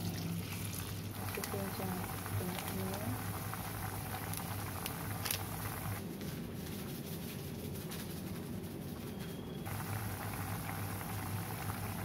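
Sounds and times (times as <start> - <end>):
broth bubbling in a pan: 0.0 - 6.0, 9.6 - 12.0
low room hum: 0.0 - 12.0.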